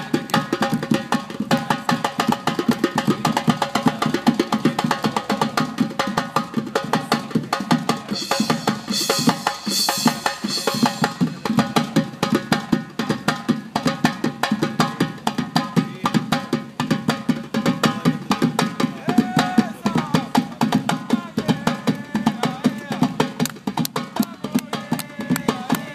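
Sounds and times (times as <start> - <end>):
fast drumming: 0.0 - 25.9
cymbal ringing: 8.2 - 11.4.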